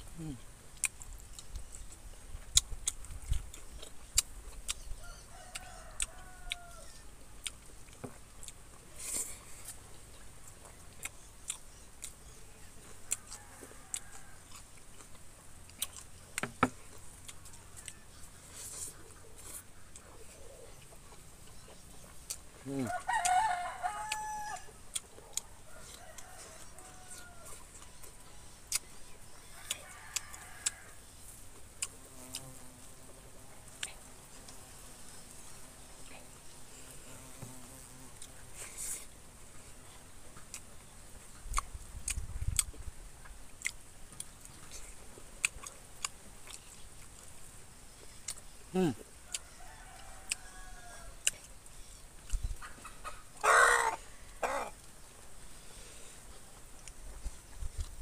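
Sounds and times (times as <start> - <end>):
rooster crowing: 5.0 - 7.2, 13.1 - 14.6, 22.8 - 24.8, 25.6 - 27.8, 29.4 - 31.1, 49.3 - 51.3, 53.4 - 54.8
chicken calls: 22.6 - 31.4, 52.4 - 54.8.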